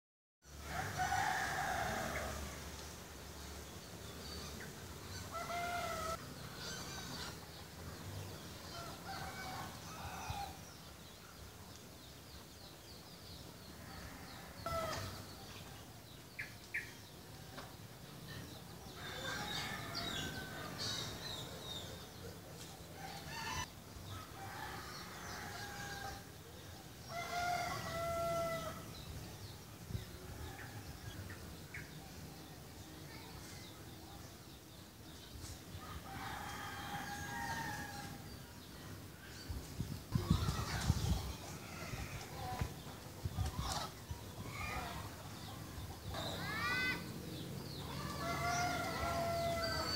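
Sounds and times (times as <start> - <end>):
roosters crowing: 0.5 - 2.6, 4.2 - 10.8, 13.8 - 15.3, 18.9 - 22.0, 23.0 - 26.4, 27.0 - 29.0, 35.8 - 38.7, 40.1 - 49.9.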